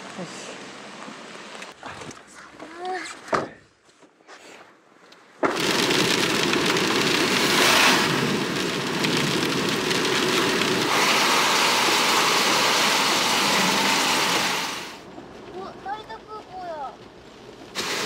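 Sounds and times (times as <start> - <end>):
rain on a vehicle: 5.4 - 18.0.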